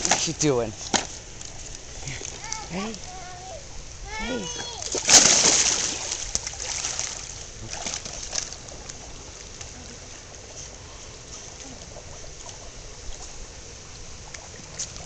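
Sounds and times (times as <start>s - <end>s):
pool water lapping: 0.0s - 15.0s
dog paddling splashes: 4.1s - 15.0s.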